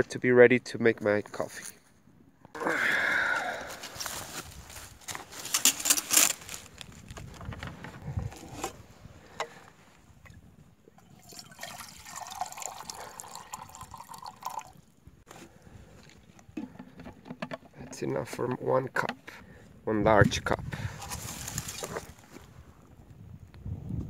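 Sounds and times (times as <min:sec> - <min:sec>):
water trickling into a cup: 0:11.0 - 0:14.9
canteen clattering in metal cup: 0:16.6 - 0:18.0.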